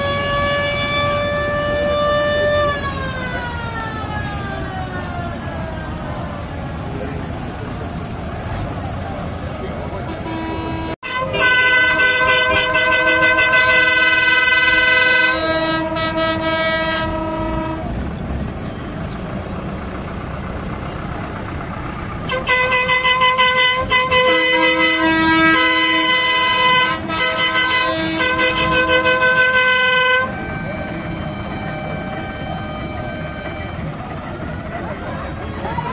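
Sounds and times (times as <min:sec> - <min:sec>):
multi-tone air horns: 0:00.0 - 0:03.4, 0:10.0 - 0:18.0, 0:22.3 - 0:35.9
tractor engine noise: 0:00.0 - 0:35.9.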